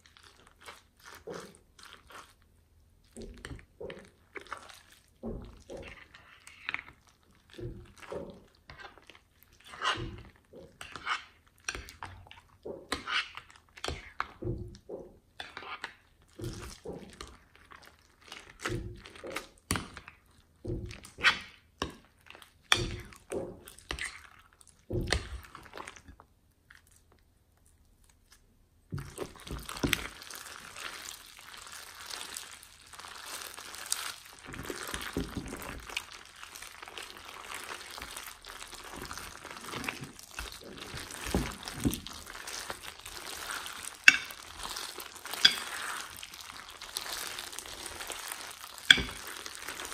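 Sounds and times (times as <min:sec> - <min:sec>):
foam beads crackling and crunching: 0:29.5 - 0:49.9.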